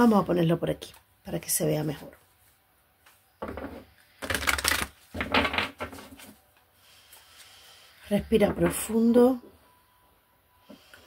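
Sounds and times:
cards rustling and tapping: 4.2s - 5.6s.

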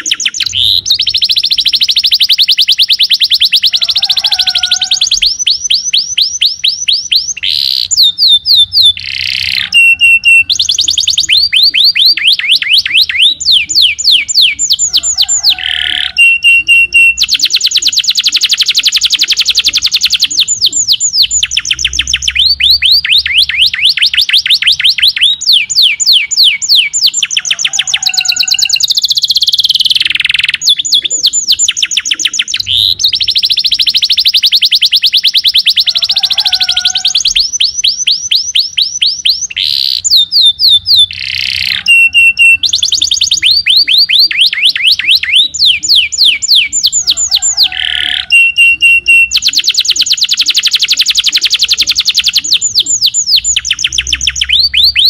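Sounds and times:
canary singing rapid trills: 0.0s - 55.0s.

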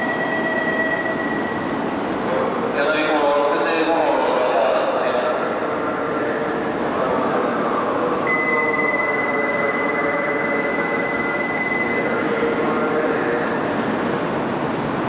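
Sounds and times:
train humming at platform: 0.0s - 15.0s
high-pitched tone: 8.3s - 12.2s.

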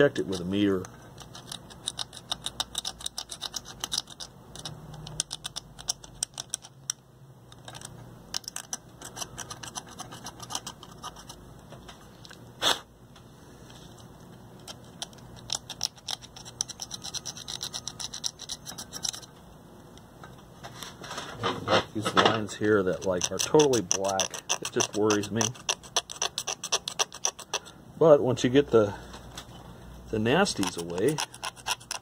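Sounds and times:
knife scraping circuit board: 14.7s - 19.3s, 22.7s - 27.6s, 30.3s - 32.0s.

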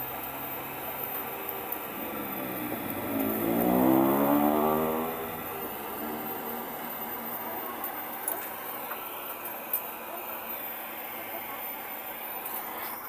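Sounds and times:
passing vehicle engine: 0.0s - 8.4s
torch flame hissing: 0.0s - 13.0s.

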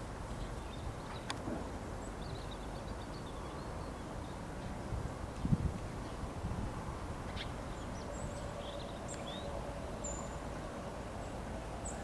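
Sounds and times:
low outdoor rumble: 0.0s - 12.0s
small birds chirping: 0.3s - 1.4s, 2.0s - 6.3s, 7.3s - 10.6s.

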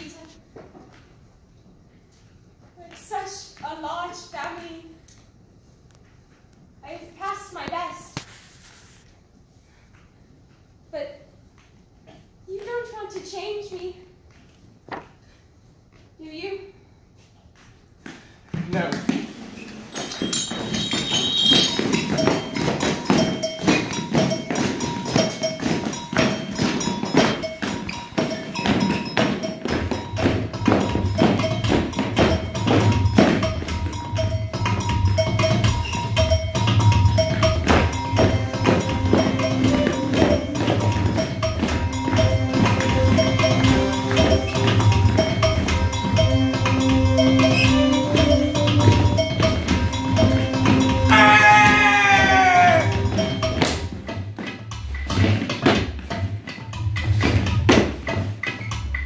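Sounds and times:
high bell-like tones: 19.8s - 54.0s
upbeat dance music: 20.3s - 54.0s.

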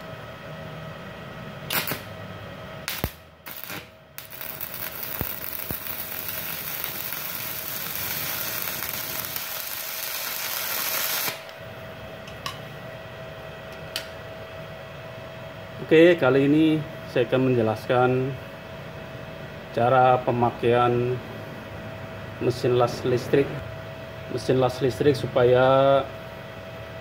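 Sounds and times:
welding arc crackling hiss: 1.7s - 2.1s, 2.8s - 11.6s
electrode strike crackles: 2.9s - 11.4s.

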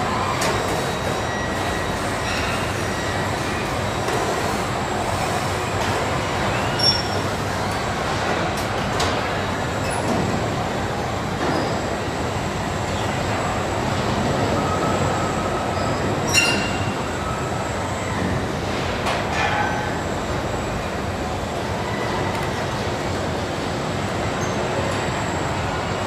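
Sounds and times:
short high squeaks: 6.6s - 7.2s, 15.8s - 17.0s.

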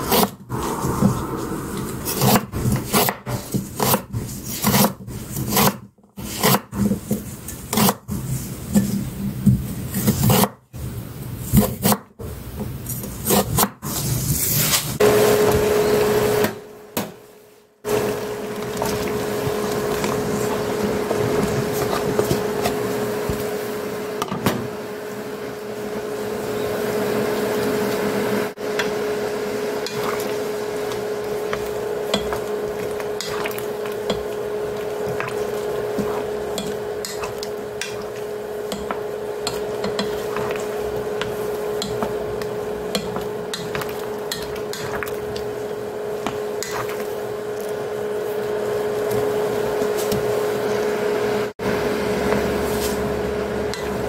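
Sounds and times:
steady hum: 0.0s - 2.9s
water boiling in a pan: 17.9s - 54.0s.

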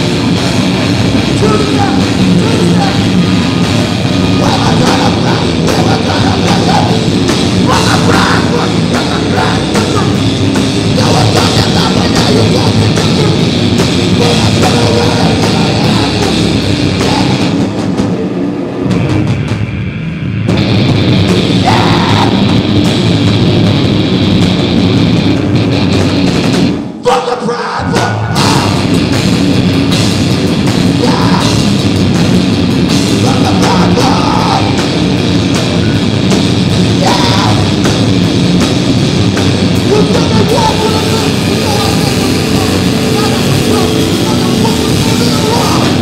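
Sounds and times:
rock band playing live: 0.0s - 46.0s.

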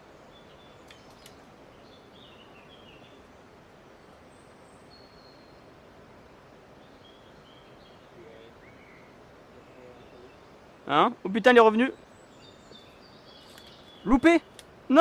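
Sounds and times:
small birds chirping: 0.0s - 5.8s, 6.7s - 15.0s.

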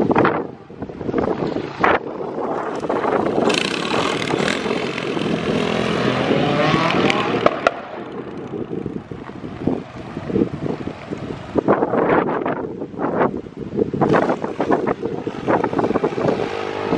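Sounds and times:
motorcycle engine revving: 1.8s - 9.2s, 14.0s - 16.9s.

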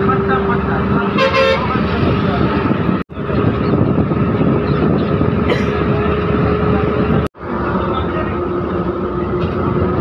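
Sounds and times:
bus engine and road noise: 0.0s - 10.0s.

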